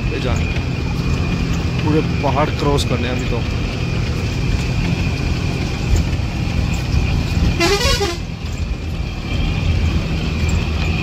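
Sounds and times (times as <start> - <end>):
bus engine rumbling: 0.0 - 11.0
vehicle horn toot: 7.5 - 8.3.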